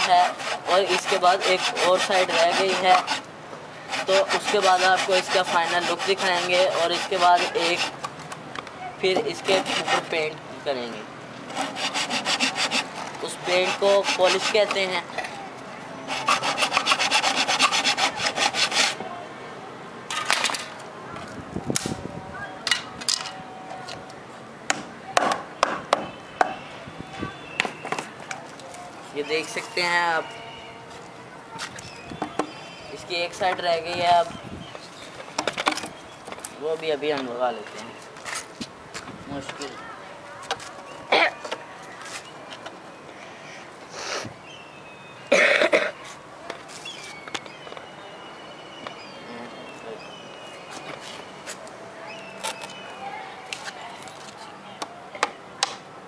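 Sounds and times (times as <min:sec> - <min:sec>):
person coughing: 0:41.1 - 0:41.4, 0:45.3 - 0:46.0.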